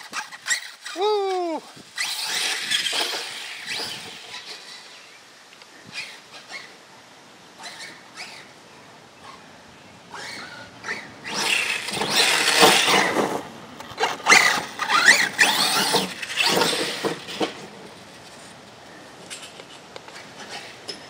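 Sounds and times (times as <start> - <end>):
rc truck motor whining: 0.0 - 5.1, 5.9 - 6.8, 7.6 - 8.6, 10.1 - 18.4, 20.1 - 21.0.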